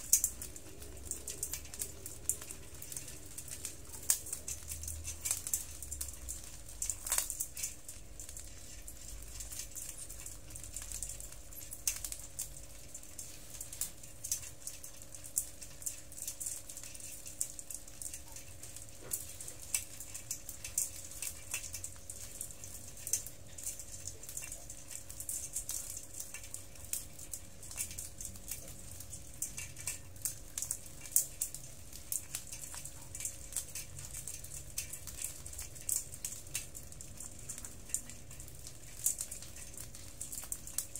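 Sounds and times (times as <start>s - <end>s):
crab shells clicking and rattling: 0.0s - 40.9s.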